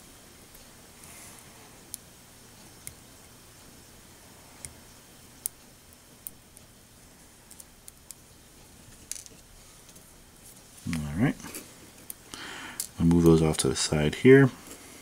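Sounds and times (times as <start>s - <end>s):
faint clicks of tweezers and tape: 2.6s - 3.0s, 4.6s - 4.8s, 5.4s - 6.7s.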